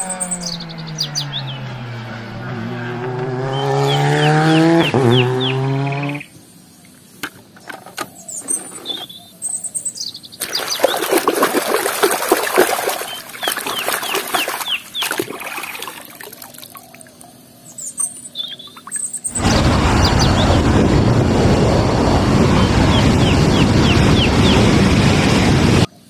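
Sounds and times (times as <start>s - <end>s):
birds chirping: 0.0s - 20.7s, 22.2s - 24.8s
water splashing in a tub: 10.4s - 17.2s.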